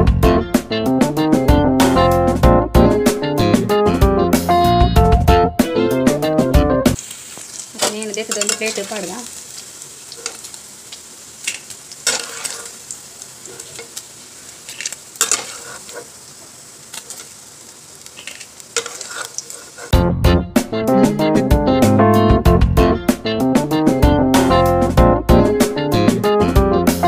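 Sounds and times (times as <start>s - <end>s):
guitar music: 0.0s - 7.0s, 20.0s - 27.0s
cheese frying in oil: 7.0s - 20.0s
spatula scraping a pan: 7.5s - 9.2s, 10.0s - 10.6s, 11.4s - 17.4s, 18.0s - 20.0s.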